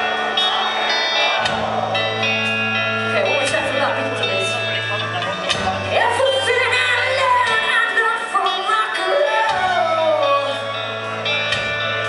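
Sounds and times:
bass guitar: 0.0s - 12.0s
electric guitars: 0.0s - 12.0s
woman singing lead: 5.9s - 10.9s.

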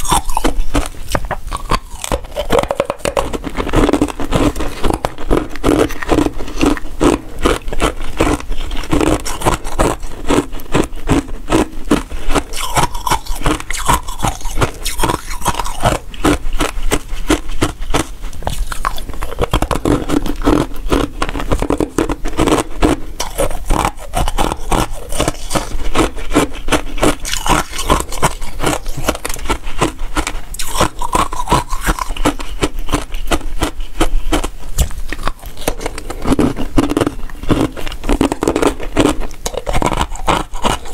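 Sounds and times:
ice pieces clicking and scraping: 12.3s - 17.7s, 18.5s - 40.9s.

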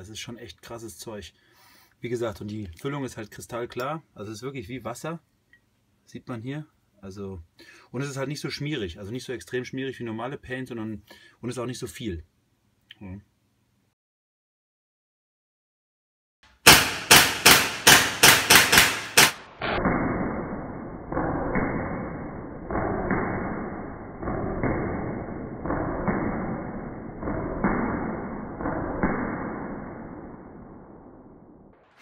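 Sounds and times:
paintball shots hitting target: 16.6s - 20.4s, 21.1s - 30.2s.

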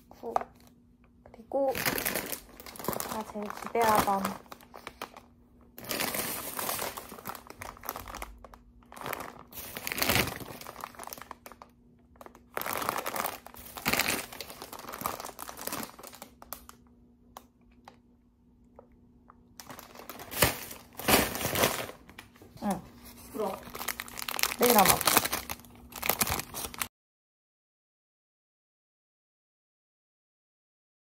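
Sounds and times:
plastic snack bags crinkling: 1.4s - 18.0s, 19.5s - 26.9s.

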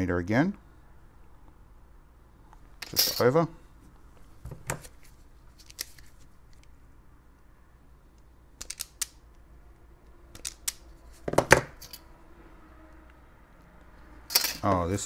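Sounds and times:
wire stripper clicking and snapping: 8.6s - 9.4s, 10.3s - 10.9s.

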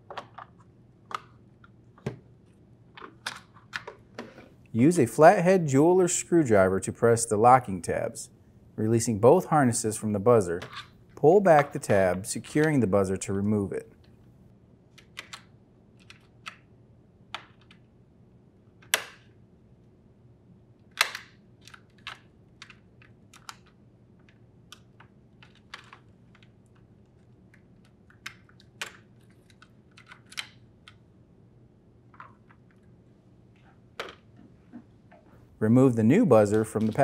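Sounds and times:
sharp plastic snaps: 18.8s - 19.4s, 20.8s - 23.8s.

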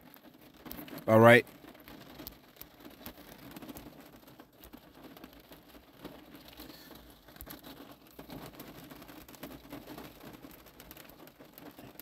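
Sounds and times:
soft clicks and crackles: 0.0s - 12.0s.

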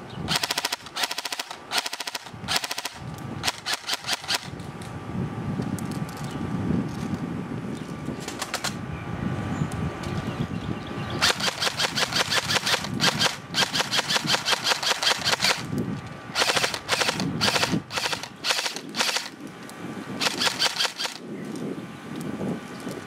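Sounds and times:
airsoft rifle firing full auto: 0.3s - 4.6s, 11.2s - 15.7s, 16.3s - 19.4s, 20.2s - 21.2s.

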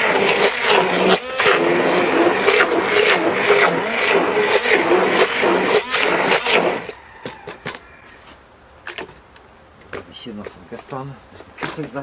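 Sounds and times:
hand blender motor running: 0.0s - 7.0s.

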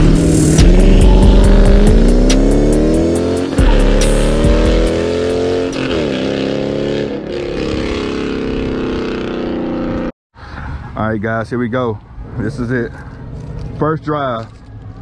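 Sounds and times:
car engine accelerating: 0.0s - 10.1s.

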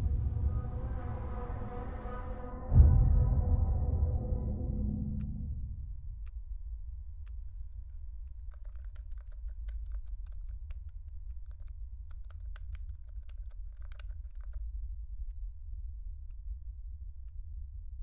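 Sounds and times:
steady low hum: 0.0s - 7.8s
laptop keyboard typing: 8.4s - 14.6s.

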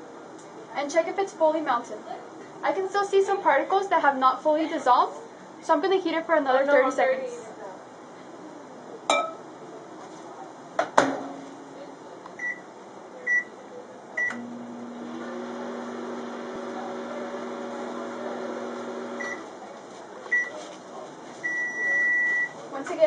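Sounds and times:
microwave oven humming: 11.6s - 20.6s
microwave beep: 12.4s - 12.6s, 13.3s - 13.5s, 14.2s - 14.6s, 19.0s - 19.4s, 20.3s - 20.6s, 21.4s - 22.6s.

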